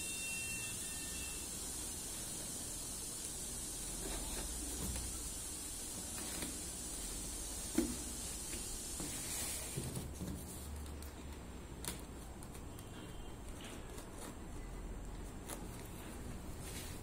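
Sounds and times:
tape and cardboard scraping: 0:06.1 - 0:06.7.

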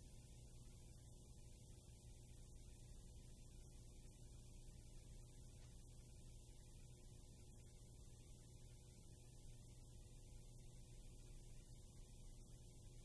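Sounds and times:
faint low hum with hiss: 0:00.0 - 0:13.0.

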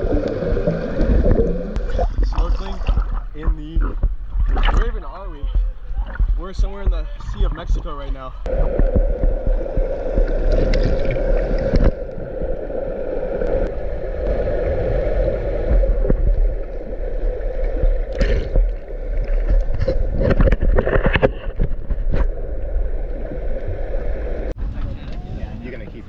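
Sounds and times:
muffled underwater water sloshing: 0:00.0 - 0:24.6.

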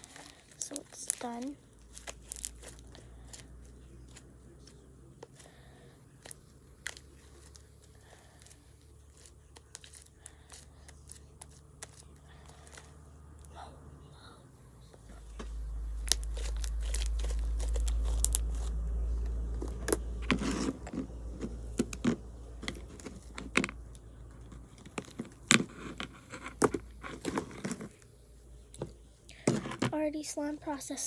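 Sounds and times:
low rumble: 0:12.3 - 0:24.8.

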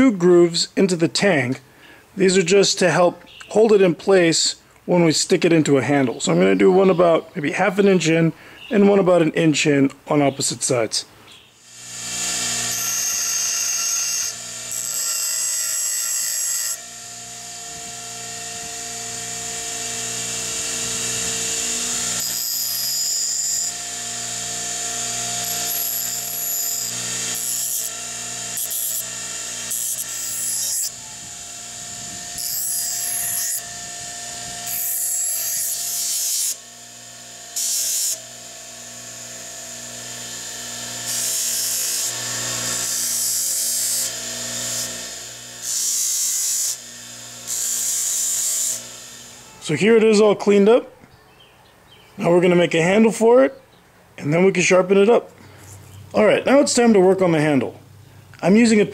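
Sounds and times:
grinder motor humming: 0:11.6 - 0:50.7
steel grinding on stone wheel: 0:11.7 - 0:36.6, 0:37.2 - 0:49.7.

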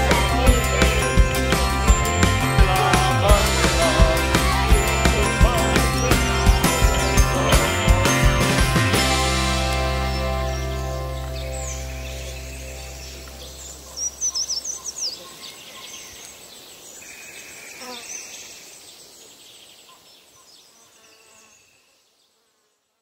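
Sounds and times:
bird chirps: 0:00.0 - 0:22.4
faint insect-like hum: 0:11.8 - 0:23.0.

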